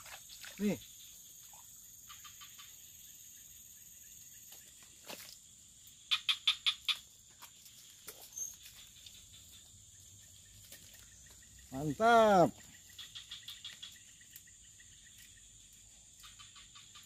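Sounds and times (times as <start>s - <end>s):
frog croaking: 6.1s - 7.0s.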